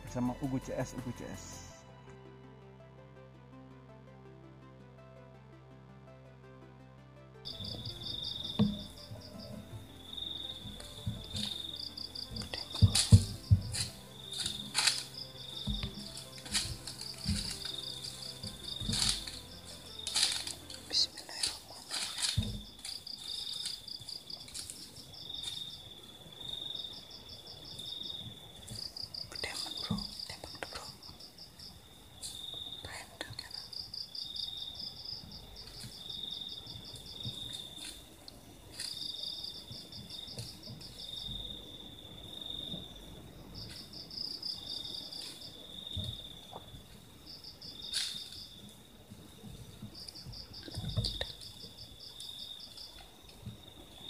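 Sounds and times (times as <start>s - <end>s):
insect pulsing trill: 7.4s - 54.0s
insect short high notes: 7.5s - 24.3s.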